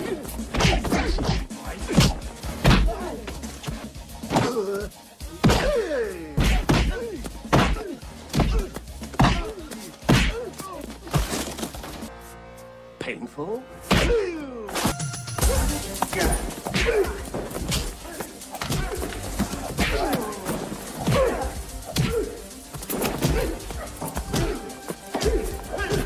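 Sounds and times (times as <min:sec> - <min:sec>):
fighters grunting and shouting: 0:00.0 - 0:11.2, 0:13.9 - 0:14.6, 0:15.4 - 0:26.0
background music: 0:00.0 - 0:26.0
punch and kick impacts: 0:00.5 - 0:03.0, 0:05.4 - 0:05.8, 0:06.4 - 0:11.6, 0:13.9 - 0:14.2, 0:18.6 - 0:22.3, 0:22.9 - 0:26.0.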